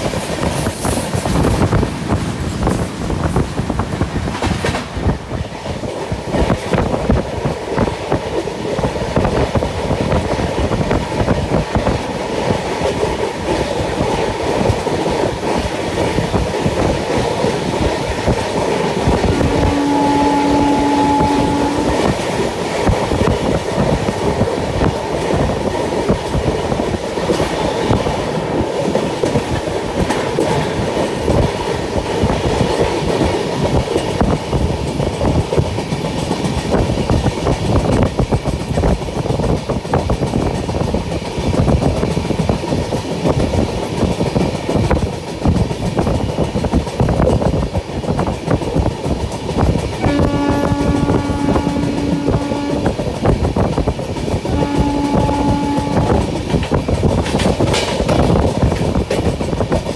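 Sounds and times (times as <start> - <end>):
clickety-clack over rail joints: 0.0 - 59.9
train wheels rumbling on rails: 0.0 - 59.9
steady tone: 19.3 - 22.3.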